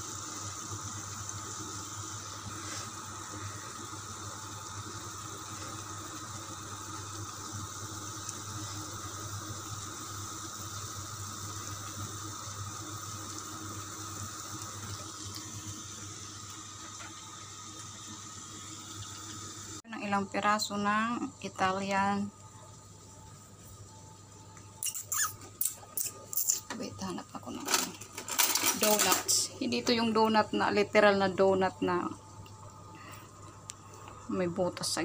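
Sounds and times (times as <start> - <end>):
dough deep-frying in oil: 0.0 - 27.6.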